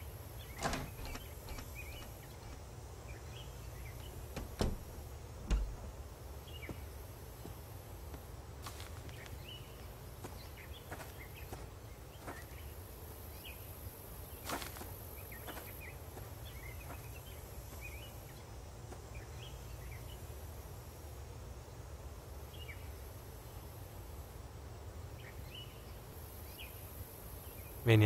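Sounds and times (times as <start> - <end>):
small birds chirping: 0.0 - 7.8, 9.0 - 20.4.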